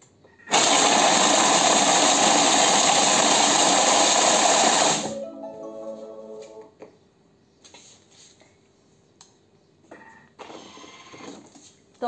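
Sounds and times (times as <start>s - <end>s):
blender grinding biscuits: 0.5s - 5.1s.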